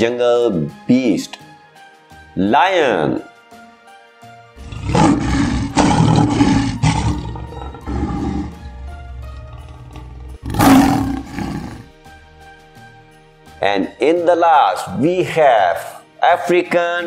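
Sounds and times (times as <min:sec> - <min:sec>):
background music: 0:00.0 - 0:17.0
lion roaring: 0:04.6 - 0:11.9.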